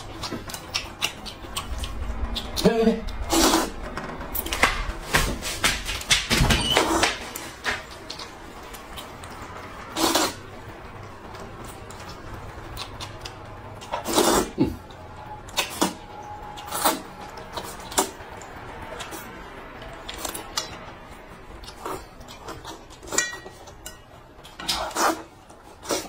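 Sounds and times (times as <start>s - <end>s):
noodles slurped noisily: 13.9s - 14.8s.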